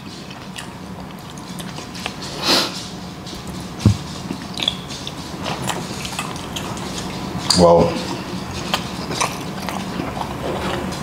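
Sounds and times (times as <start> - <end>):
chewing and wet mouth clicks: 0.3 - 2.2, 4.3 - 7.6, 8.6 - 10.9
low thump: 3.8 - 4.1.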